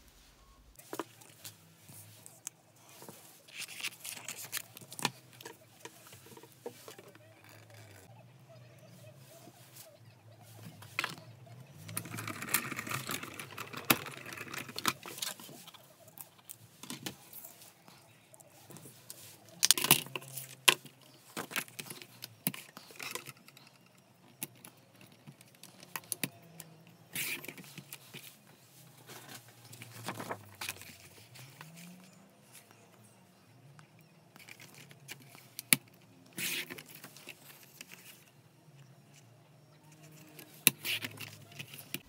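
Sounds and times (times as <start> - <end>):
paper rustling: 0.8 - 8.1, 27.1 - 32.8.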